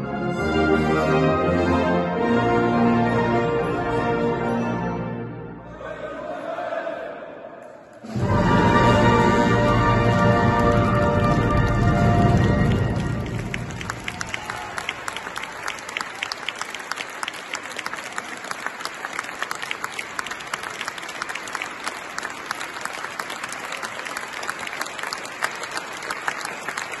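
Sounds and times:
audience applauding: 8.1 - 27.0.

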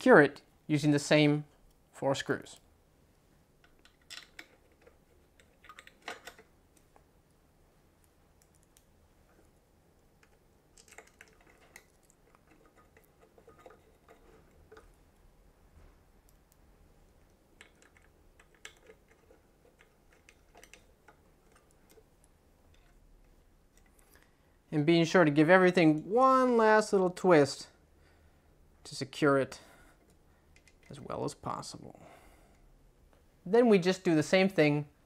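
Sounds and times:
hex key clicking on screws: 17.6 - 22.0.

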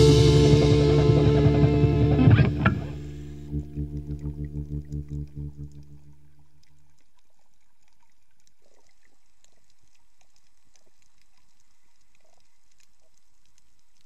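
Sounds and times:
faint underwater crackles and clicks: 2.2 - 14.0.

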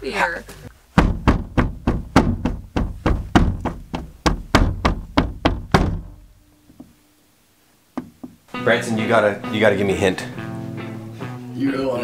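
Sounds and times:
dull thuds: 0.8 - 7.0, 8.0 - 8.4.

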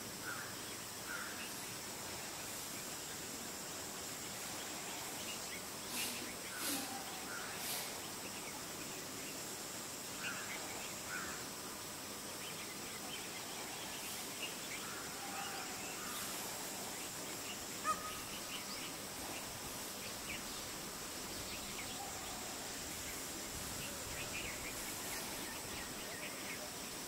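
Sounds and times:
small birds chirping: 12.4 - 27.0.

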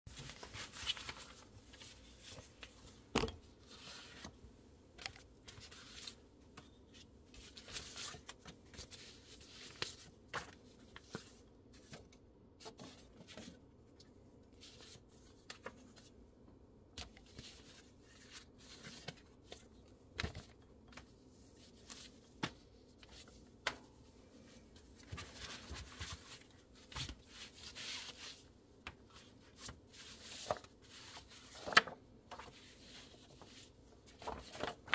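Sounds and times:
paper rustling and sliding: 0.1 - 3.0, 29.1 - 34.9.

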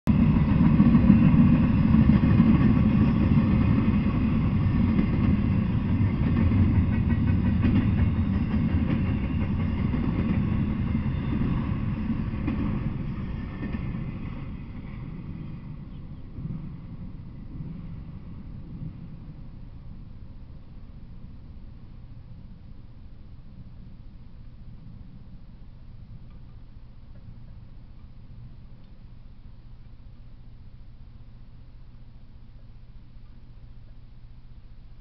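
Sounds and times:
freight train rolling past: 0.1 - 23.9.

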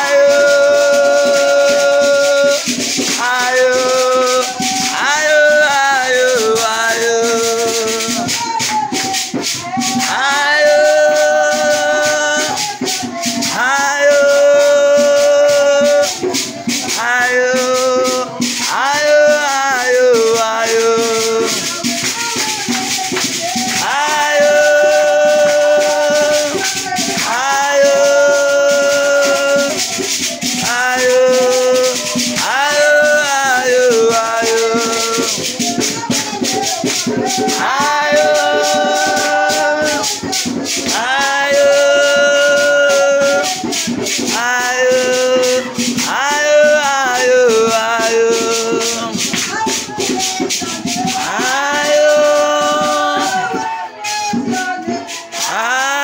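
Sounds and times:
group singing a praise song: 0.0 - 56.0
rapid shaker rhythm: 0.0 - 56.0.

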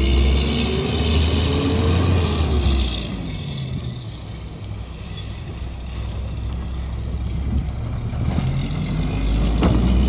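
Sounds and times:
short high squeals: 4.0 - 6.2, 7.0 - 7.8.

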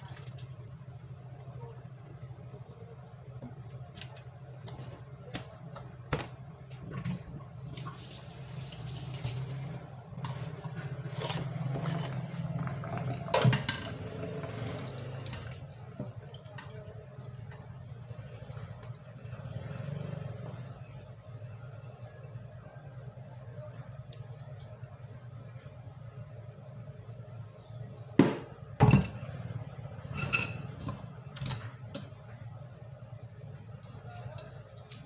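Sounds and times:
water sloshing and dripping: 6.6 - 13.3, 14.0 - 26.5, 33.3 - 35.0
water poured into a sink: 6.9 - 12.5, 33.8 - 35.0.

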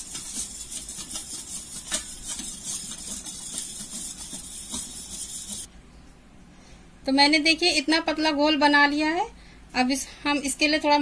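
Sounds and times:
whisk clicking against metal bowl: 0.0 - 5.7
whisk stirring batter: 0.0 - 5.7.

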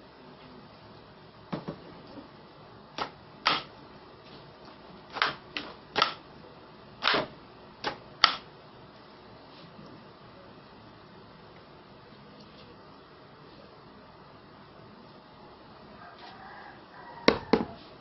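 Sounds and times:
plastic airgun mechanism clacks: 6.0 - 6.2.

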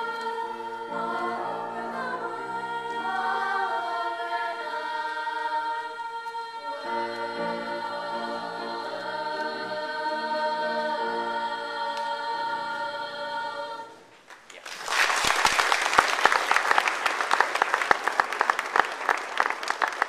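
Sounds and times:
girls' chorus singing: 0.0 - 14.1.

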